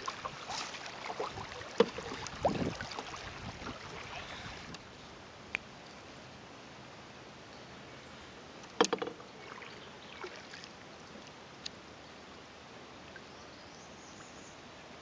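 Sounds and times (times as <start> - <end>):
paddle knocking wooden hull: 0.0 - 4.1, 8.8 - 9.2
low steady background hiss: 0.0 - 15.0.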